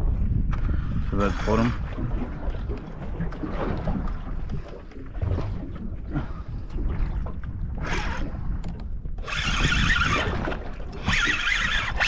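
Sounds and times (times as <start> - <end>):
low rumble of wind and boat: 0.0 - 12.0
fishing reel running: 9.2 - 10.4, 11.0 - 12.0.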